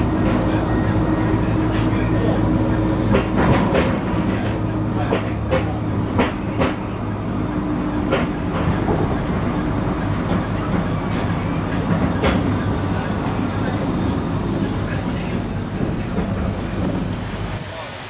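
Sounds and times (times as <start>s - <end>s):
tram motor hum: 0.0s - 18.0s
wheels clicking on rails: 7.9s - 17.5s.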